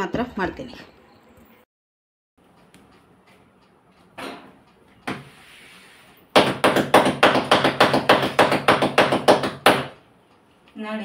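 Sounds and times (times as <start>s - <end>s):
hands slapping dough: 6.4s - 10.0s.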